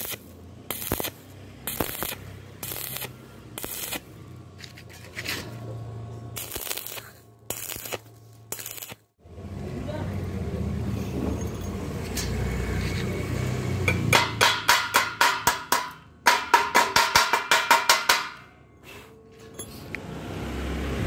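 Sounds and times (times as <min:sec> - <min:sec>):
chipping hammer striking metal: 0:13.9 - 0:18.5.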